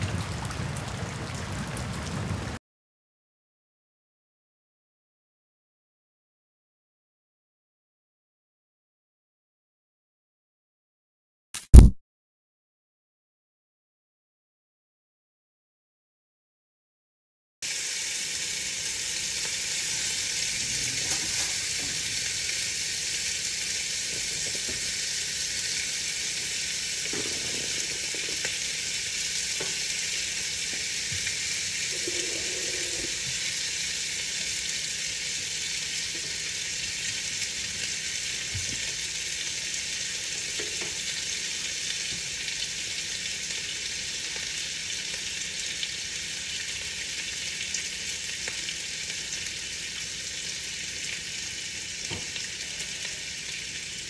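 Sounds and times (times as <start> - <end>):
faint raindrop taps: 0.0 - 2.6
rain on a window: 0.0 - 2.6, 18.2 - 47.8.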